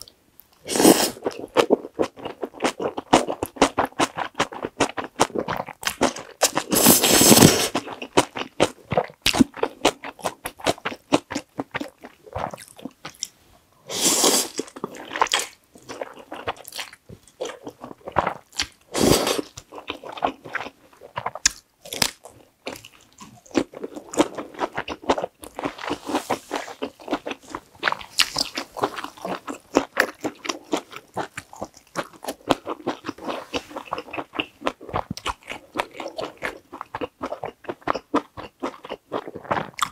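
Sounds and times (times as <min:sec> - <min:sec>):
noodle slurps: 0:06.5 - 0:07.8.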